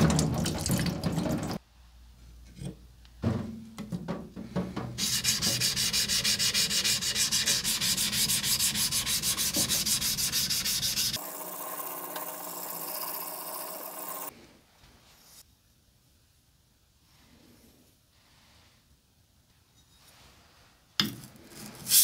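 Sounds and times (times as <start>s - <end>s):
smooth rubbing: 5.0s - 11.2s.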